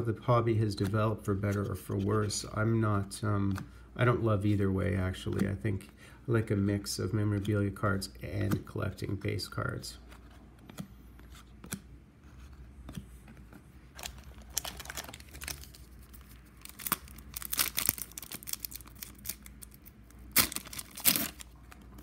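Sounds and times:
cards being handled: 0:00.6 - 0:02.4, 0:05.2 - 0:05.6, 0:10.0 - 0:22.0
foil wrapper crinkling and tearing: 0:14.0 - 0:22.0.

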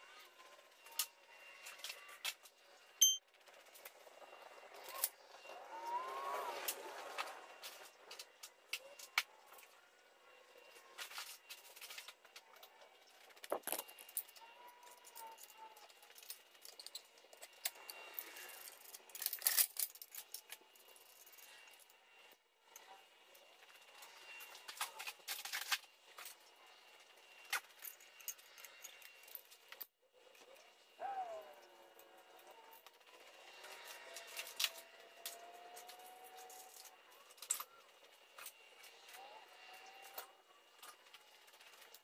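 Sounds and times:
metal bolts clinking and rattling: 0:13.4 - 0:15.4.

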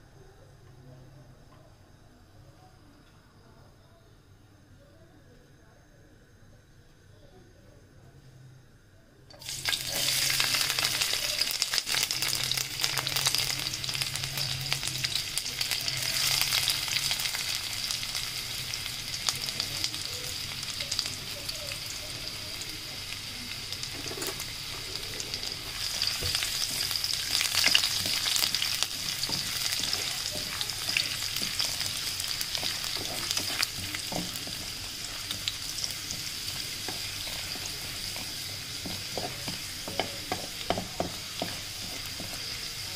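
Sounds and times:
garlic sizzling in hot oil: 0:09.3 - 0:42.9
wooden spatula stirring: 0:24.0 - 0:42.9.

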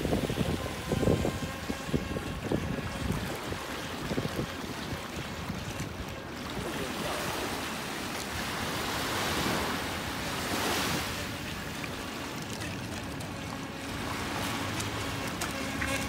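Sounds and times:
wind on microphone: 0:00.0 - 0:07.4
choppy water washing: 0:00.0 - 0:16.0.

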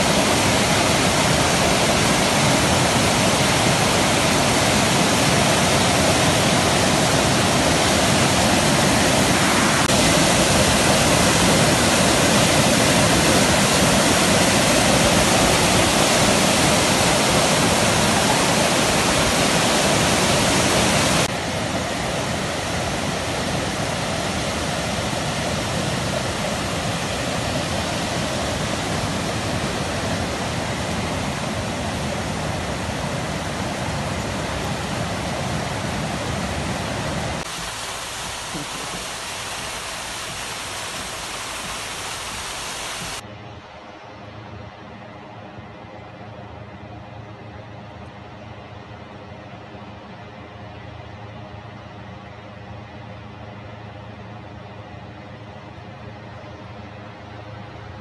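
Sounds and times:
water rushing over boulders: 0:00.0 - 0:43.2.

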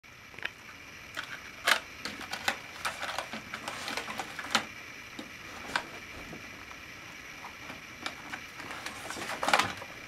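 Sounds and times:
plastic toy helicopter clicks and knocks: 0:01.2 - 0:04.7.

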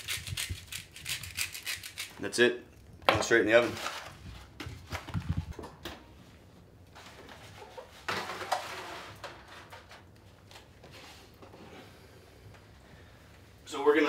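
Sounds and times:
foil pan scraping on oven rack: 0:07.4 - 0:10.0.

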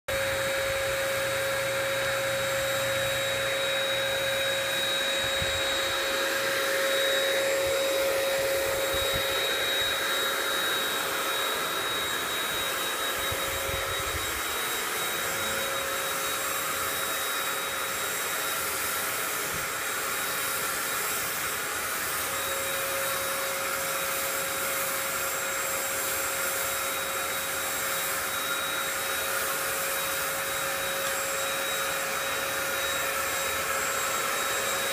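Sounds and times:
paint sprayer turbine whine: 0:00.1 - 0:34.9.

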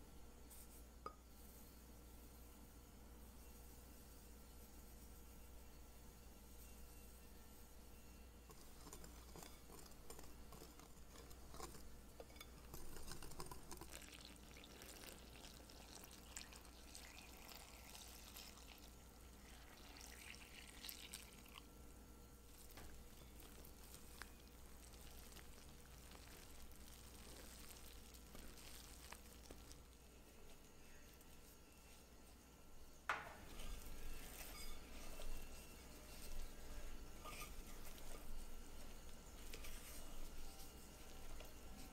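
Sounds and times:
whisk stirring flour in glass bowl: 0:08.5 - 0:21.6, 0:22.5 - 0:32.0, 0:33.4 - 0:41.9
water pouring into flour: 0:12.7 - 0:21.7, 0:22.5 - 0:30.0.

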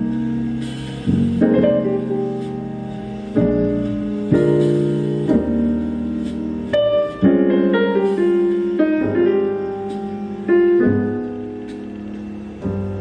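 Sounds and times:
piano chords over small speaker: 0:00.0 - 0:13.0.

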